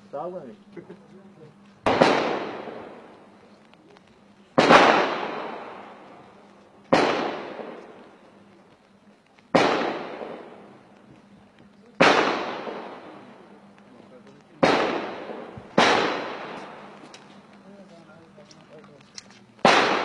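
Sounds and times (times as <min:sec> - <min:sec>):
gunshots with long echo: 0:01.8 - 0:03.3, 0:04.6 - 0:06.2, 0:06.9 - 0:08.2, 0:09.5 - 0:10.8, 0:12.0 - 0:13.5, 0:14.6 - 0:17.0, 0:19.6 - 0:20.0.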